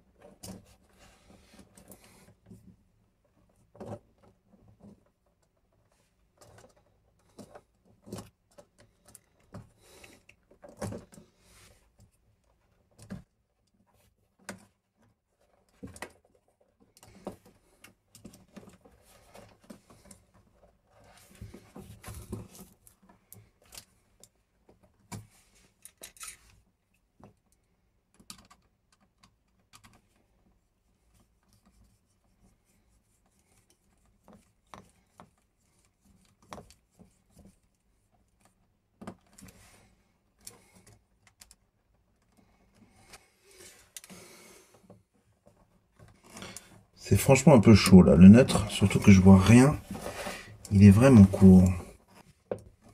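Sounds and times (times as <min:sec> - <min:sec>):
handling clicks and scrapes: 0:03.4 - 0:26.7.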